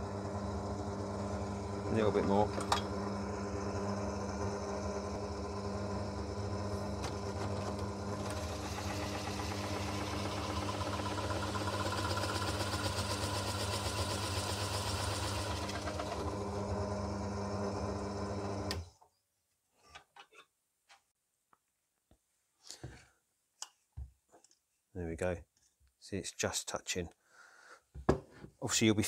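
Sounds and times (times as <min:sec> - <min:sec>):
drill motor running: 0:00.0 - 0:18.8
drill bit cutting into plywood: 0:00.8 - 0:16.7.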